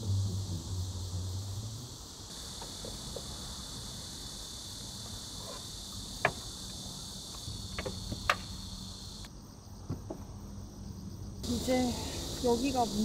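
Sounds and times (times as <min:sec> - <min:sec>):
high insect buzz: 0:00.0 - 0:13.0
sliding door clicks and knocks: 0:07.5 - 0:08.5.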